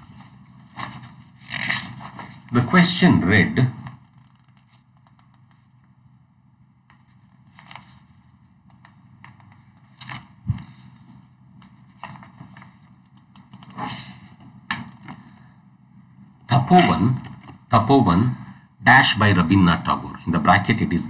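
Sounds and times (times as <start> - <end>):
faint clicks and rustles: 3.8 - 6.0, 6.8 - 15.3.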